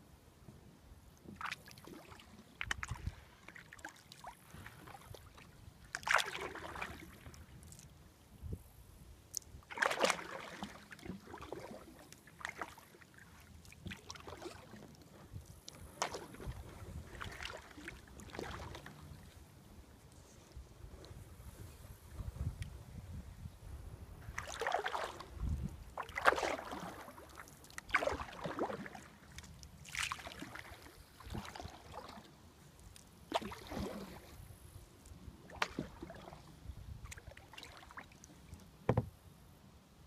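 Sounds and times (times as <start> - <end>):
kayak paddle splashing in water: 1.3 - 7.9, 9.6 - 15.1, 15.7 - 19.4, 24.3 - 32.4, 33.2 - 34.4, 35.4 - 39.2.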